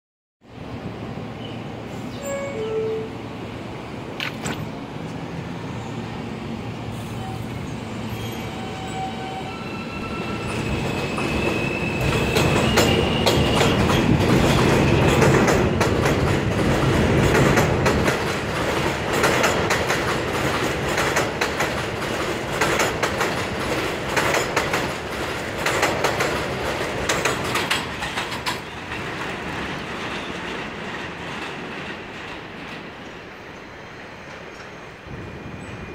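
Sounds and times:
wheels clattering over rail joints: 12.0s - 33.0s.

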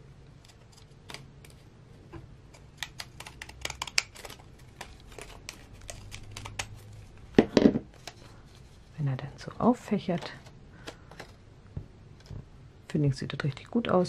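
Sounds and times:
shears snipping paper: 2.6s - 6.9s.

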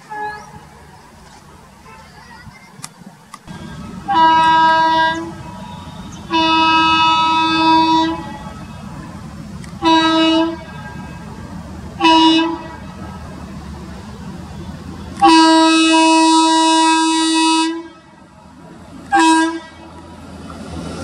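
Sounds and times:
low rumble of approaching train: 0.0s - 21.0s
electric locomotive horn blasts: 3.5s - 9.2s, 9.8s - 11.4s, 12.0s - 12.9s, 14.6s - 18.2s, 19.1s - 20.0s.

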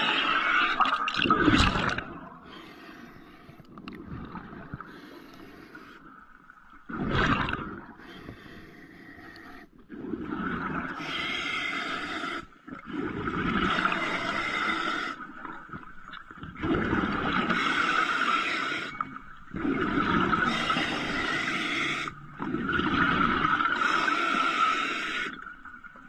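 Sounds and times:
underwater bubbling: 0.0s - 26.0s
diver breathing through regulator: 2.4s - 3.7s, 8.0s - 10.3s, 10.9s - 15.3s, 17.4s - 22.2s, 23.5s - 25.4s.

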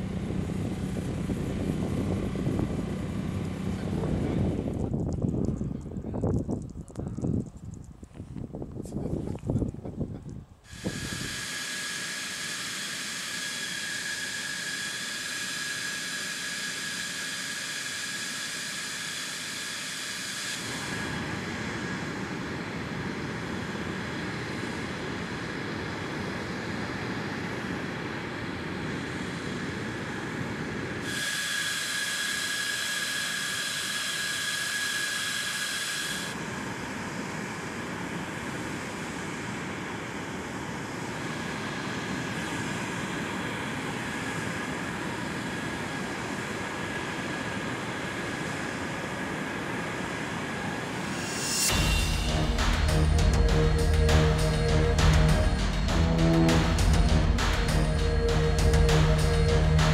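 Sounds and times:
jet engine whine: 0.0s - 59.9s
rushing spray hiss: 10.6s - 22.6s, 31.0s - 59.9s.

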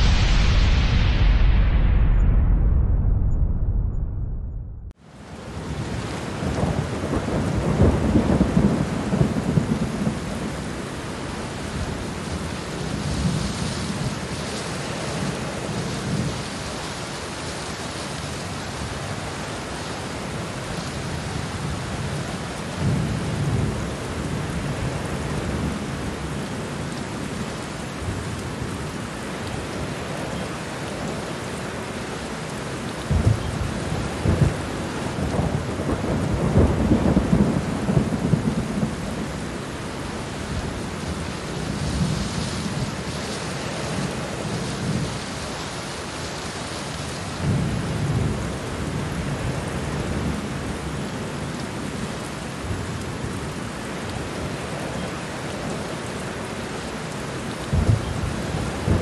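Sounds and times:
heavy rain hissing: 0.0s - 3.2s, 5.0s - 59.0s
thunder rolling: 0.0s - 10.4s, 33.0s - 43.1s, 57.7s - 59.0s.

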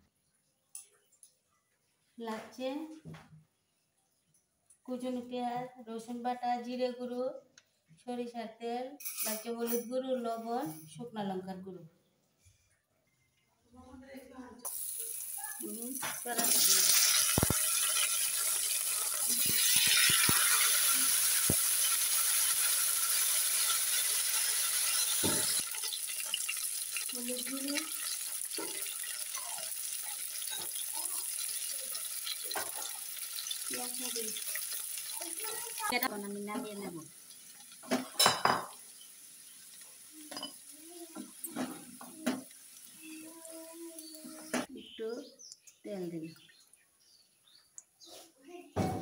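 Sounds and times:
vegetables sizzling in hot oil: 14.7s - 44.6s
pieces dropping into pan: 16.0s - 36.1s.

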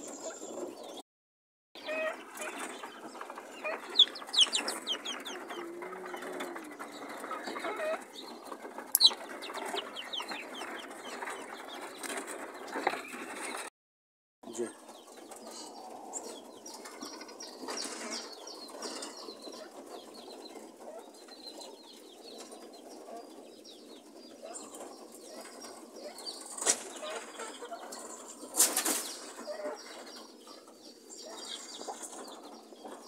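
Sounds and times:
sharp clicks: 8.9s - 9.8s
birds rustling and flapping wings: 24.7s - 30.1s.

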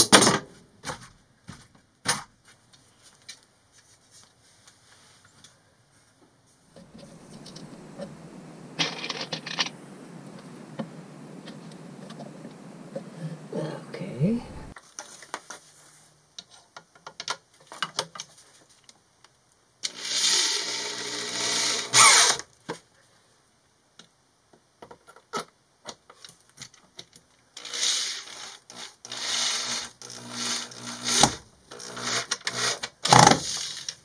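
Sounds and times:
electric drill driving screws: 19.8s - 22.4s, 27.6s - 33.8s.

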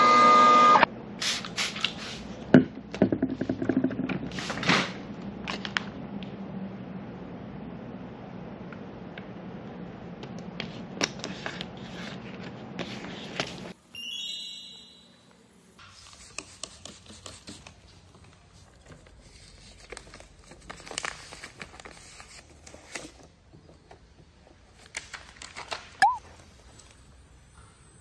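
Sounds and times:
high ringing tone: 13.9s - 15.3s
sticker backing paper crinkling: 17.0s - 23.2s.

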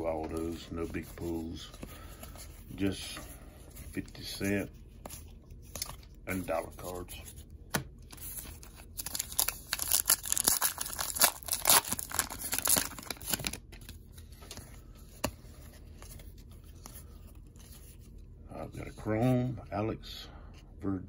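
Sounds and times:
cards shuffling: 0.0s - 18.2s
wrapper tearing and crinkling: 8.2s - 13.9s.

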